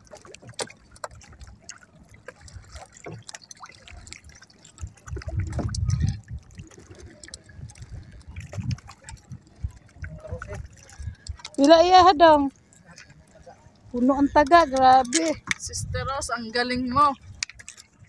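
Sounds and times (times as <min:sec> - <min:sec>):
water splashing around canoe: 0:00.0 - 0:18.0
dull low rumble: 0:04.8 - 0:12.6.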